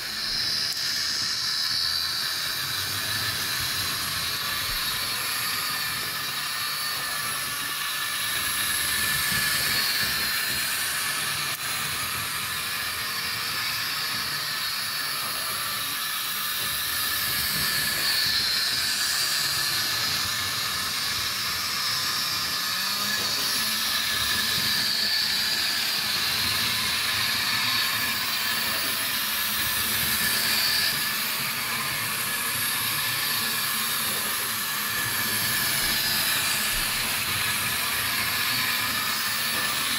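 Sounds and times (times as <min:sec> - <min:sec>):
model train whirring on track: 0:00.0 - 0:39.9.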